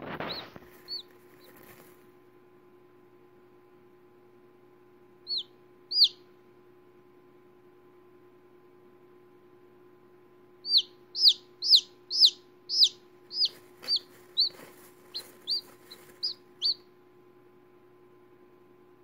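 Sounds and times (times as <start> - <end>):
chick peeping: 0.0 - 1.9, 5.2 - 6.2, 10.6 - 16.9.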